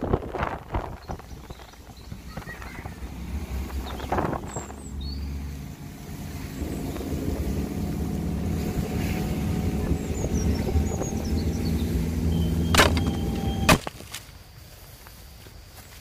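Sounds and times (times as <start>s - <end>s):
wind rumble on microphone: 0.0s - 13.8s
motorcycle engine running: 2.2s - 13.7s.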